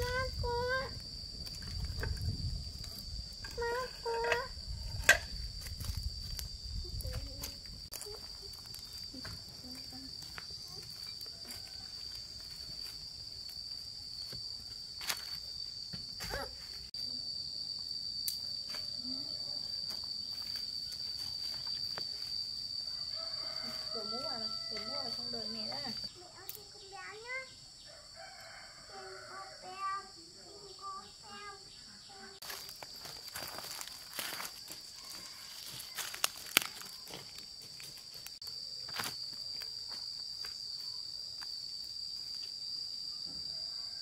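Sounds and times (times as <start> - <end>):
high-pitched insect drone: 0.0 - 44.0.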